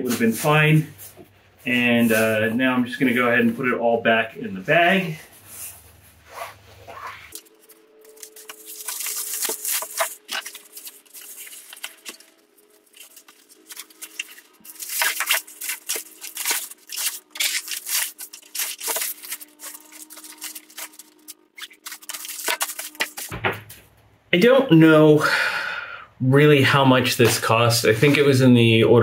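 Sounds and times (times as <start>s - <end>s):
bag rustling and crinkling: 5.4s - 23.3s.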